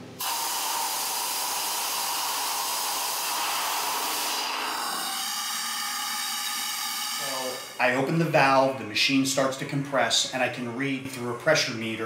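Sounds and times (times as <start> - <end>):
compressed air hissing: 0.0 - 7.9.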